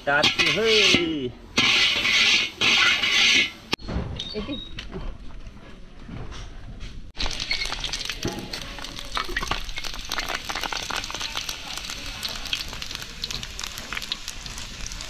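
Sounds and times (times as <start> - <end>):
hot oil sizzling in a wok: 0.0 - 3.7, 7.2 - 15.0
spices popping in oil: 7.2 - 15.0.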